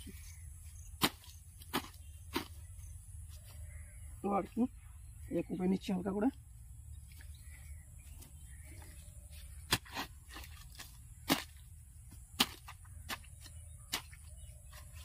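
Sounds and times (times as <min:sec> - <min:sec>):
hoe chopping into dry soil: 0:00.9 - 0:02.7, 0:09.6 - 0:15.0.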